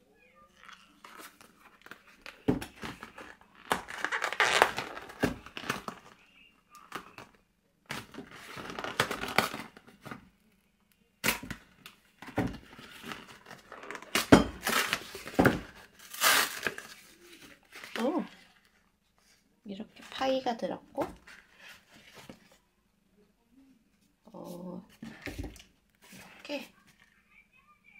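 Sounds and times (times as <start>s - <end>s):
cardboard ripping and crinkling: 0.6s - 6.2s, 7.9s - 10.0s, 12.6s - 18.3s.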